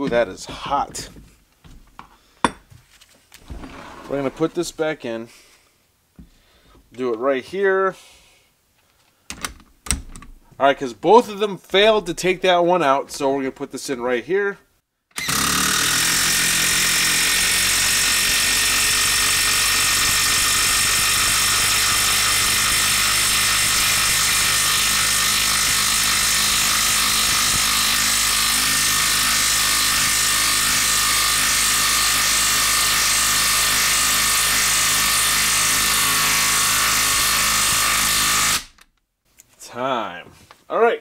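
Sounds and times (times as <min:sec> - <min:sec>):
impact driver hammering: 0:15.2 - 0:38.7.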